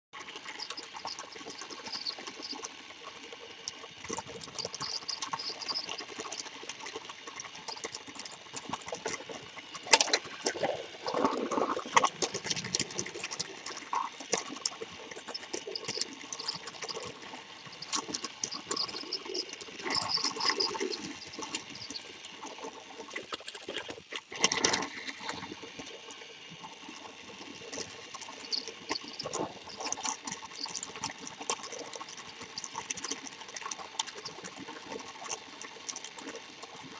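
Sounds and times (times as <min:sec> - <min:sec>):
toy train motor whirring: 0:00.2 - 0:36.9
toy train wheels rattling: 0:00.3 - 0:24.0.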